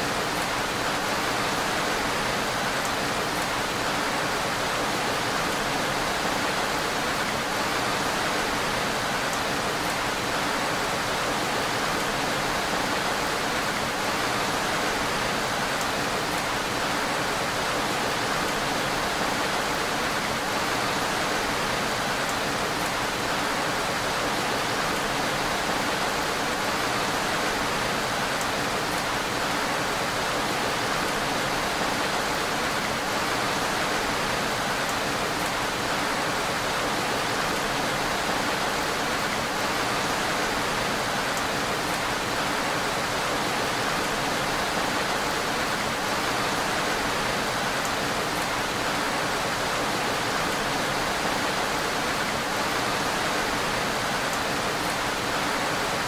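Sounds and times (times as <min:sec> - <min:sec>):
steady rain falling: 0:00.0 - 0:56.0.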